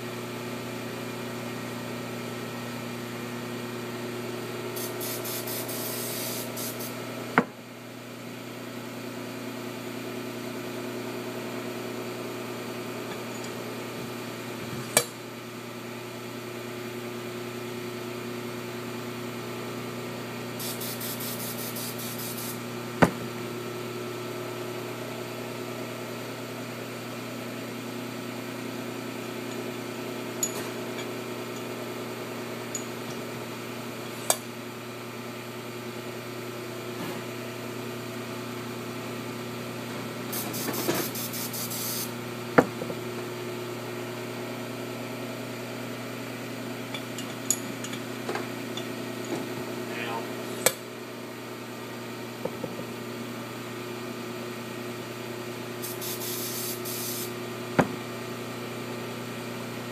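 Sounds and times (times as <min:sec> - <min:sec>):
workshop machinery hum: 0:00.0 - 0:59.9
short hissing bursts: 0:04.8 - 0:07.0, 0:20.6 - 0:22.6, 0:40.3 - 0:42.1, 0:55.8 - 0:57.3.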